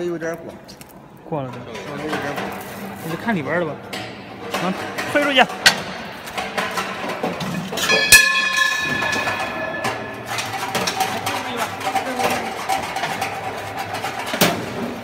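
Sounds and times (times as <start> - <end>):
steady mechanical hum: 0.0 - 15.0
metal clang ringing: 3.9 - 11.5
sharp metal clack: 7.8 - 11.8.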